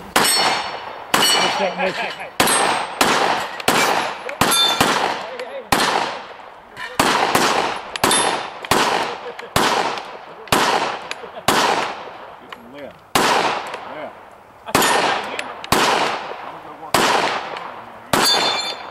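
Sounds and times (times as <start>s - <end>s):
gunshots: 0.0s - 12.4s, 13.1s - 14.0s, 14.7s - 18.9s
metallic rings of steel targets: 0.1s - 4.9s, 7.9s - 8.6s, 18.2s - 18.9s.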